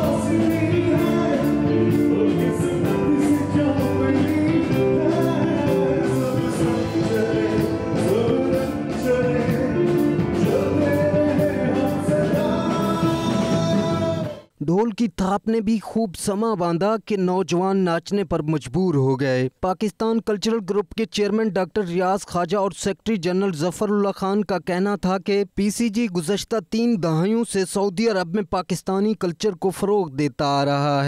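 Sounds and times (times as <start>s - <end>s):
live band playing: 0.0s - 14.5s
man singing: 0.0s - 14.6s.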